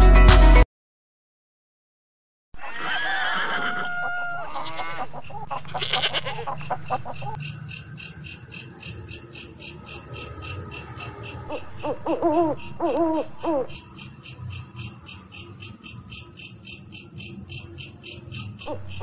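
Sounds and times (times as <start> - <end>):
farm animal calls: 2.6 - 7.4, 9.3 - 13.8, 18.6 - 19.0
fast even ticking: 4.4 - 19.0.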